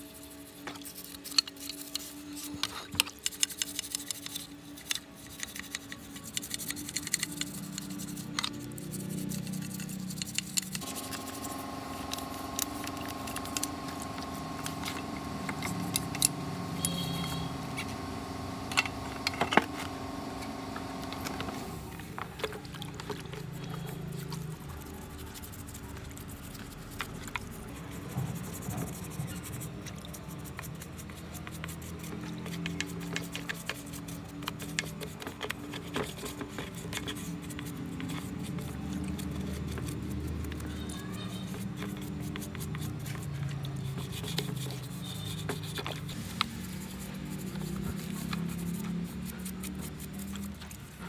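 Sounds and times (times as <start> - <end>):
toothbrush scrubbing housing: 0.0 - 51.0
steady hum: 7.6 - 29.8.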